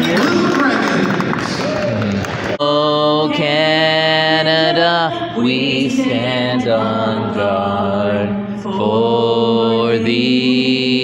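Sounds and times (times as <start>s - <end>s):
anthem sung over sound system: 2.6s - 11.0s.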